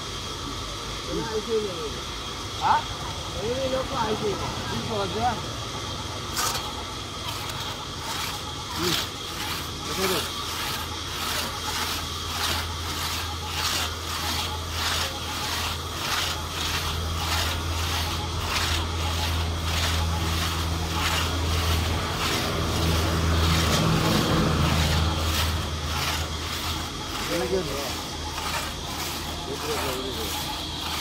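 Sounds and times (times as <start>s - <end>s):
crosscut saw rasping through log: 6.3s - 31.0s
low engine-like hum: 14.6s - 31.0s.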